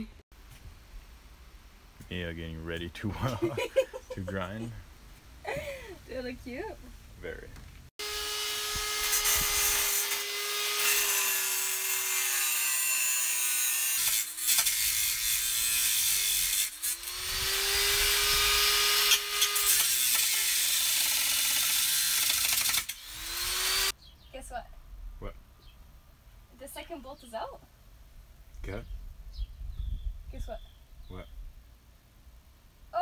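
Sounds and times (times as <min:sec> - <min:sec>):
angle grinder cutting metal: 0:08.0 - 0:23.9.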